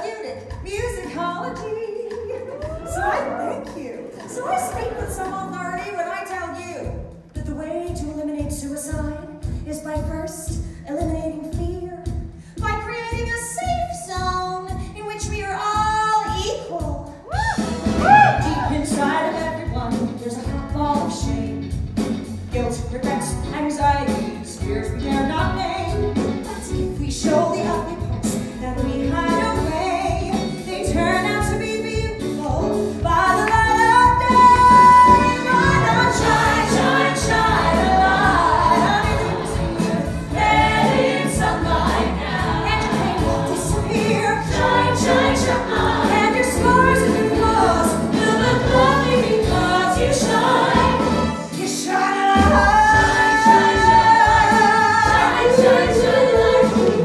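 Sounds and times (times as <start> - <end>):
band playing: 17.5 - 57.0
woman singing into a microphone: 27.0 - 39.7.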